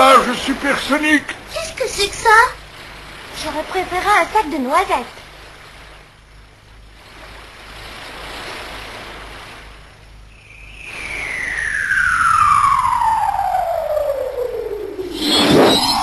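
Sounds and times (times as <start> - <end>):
long falling whistle: 10.4 - 16.0
rushing whoosh: 10.6 - 16.0.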